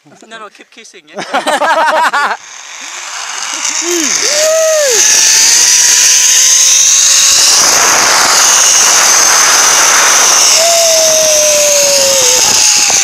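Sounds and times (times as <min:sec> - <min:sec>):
zipline pulleys whirring on cable: 0:01.3 - 0:13.0.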